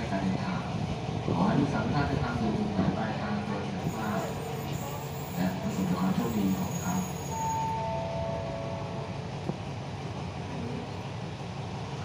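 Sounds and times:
train wheels rumbling on rails: 0.0 - 12.0
brief squeal: 6.1 - 8.0.

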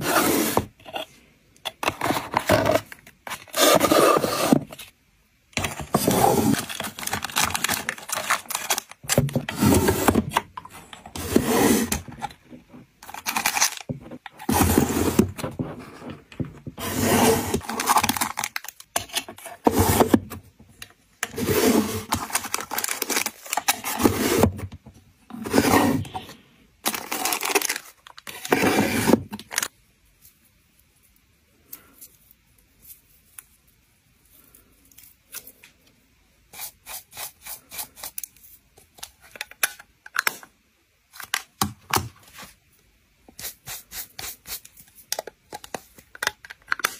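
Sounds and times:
wooden drawers scraping: 1.8 - 4.7, 5.6 - 6.9, 9.2 - 12.7, 14.4 - 17.9, 21.3 - 22.4, 23.7 - 24.7, 25.3 - 26.2, 28.4 - 29.3
plastic packaging rustling: 5.6 - 11.3, 11.9 - 16.1, 16.7 - 20.2, 21.3 - 24.6, 25.4 - 29.7.

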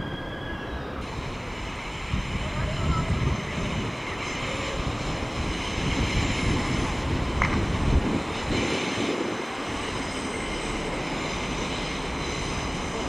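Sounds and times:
brief high squeak: 0.0 - 0.9
diesel train rumble: 0.0 - 13.0
wind on microphone: 1.0 - 10.1.

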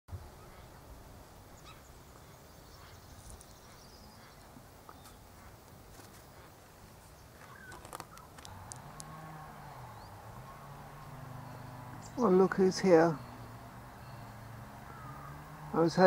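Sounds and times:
faint bird chirps: 1.5 - 5.2, 9.0 - 15.7
small clicks: 7.4 - 9.1.

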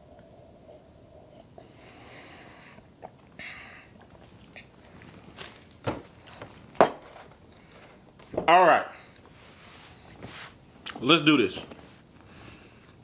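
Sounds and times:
soft breaths: 0.1 - 5.2, 7.4 - 8.1, 8.9 - 10.6, 11.7 - 13.0.

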